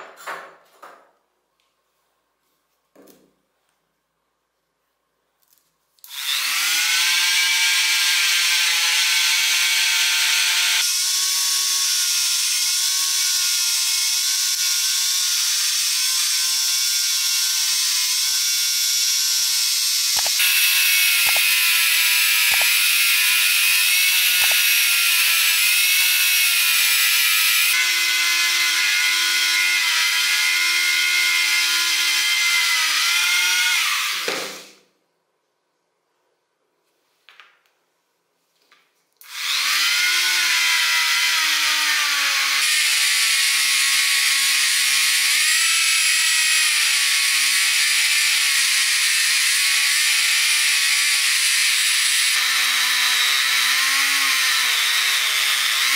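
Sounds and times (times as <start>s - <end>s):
rotary tool whining: 17.2s - 30.5s
grinding rust off metal screw: 20.0s - 27.8s
sharp clicks: 20.2s - 20.4s, 21.2s - 21.6s, 22.5s - 22.8s, 24.4s - 24.7s.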